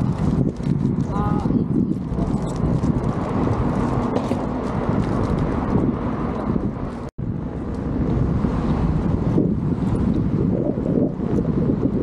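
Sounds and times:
tyre rumbling over brick paving: 0.0 - 7.1
wind buffeting microphone: 0.0 - 12.0.

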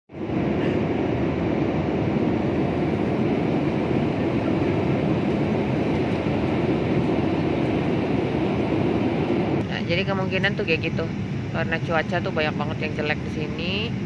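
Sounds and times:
airliner cabin engine rumble: 0.1 - 14.0.

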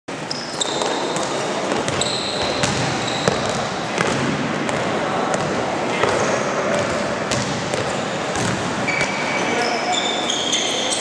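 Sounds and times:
sneaker squeaks: 0.1 - 4.2, 7.3 - 11.0
hubbub of the game: 0.4 - 11.0
basketball dribbling on court: 0.7 - 6.2, 6.8 - 9.1.

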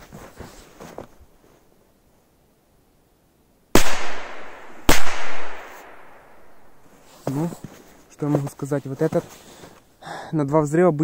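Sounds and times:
firecracker bangs: 3.8 - 6.3.

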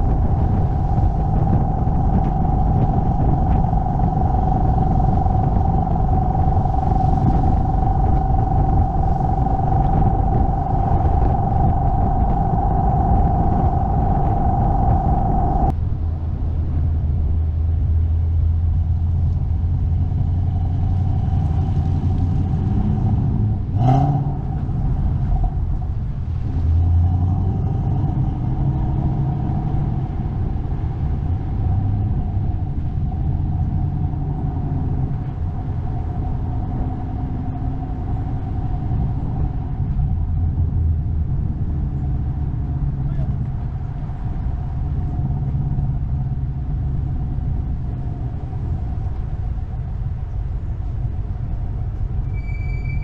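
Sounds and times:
short sharp rising sound: 0.0 - 15.7
car engine and road rumble: 0.0 - 53.0.

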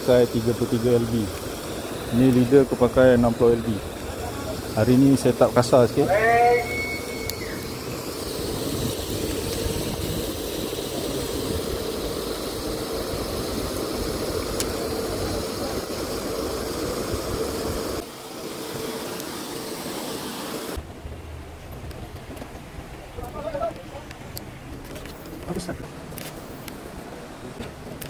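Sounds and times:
aerator motor hum: 0.0 - 20.8
hiss: 0.0 - 20.8.

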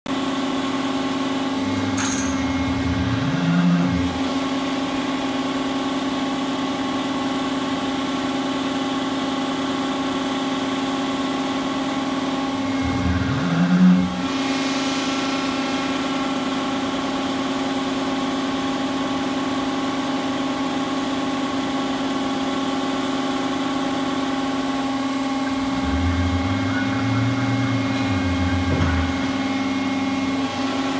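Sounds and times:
hydraulic power unit humming: 0.4 - 8.4, 10.0 - 30.9
hydraulic winch drone: 1.5 - 4.6, 10.5 - 19.4, 22.3 - 30.9.

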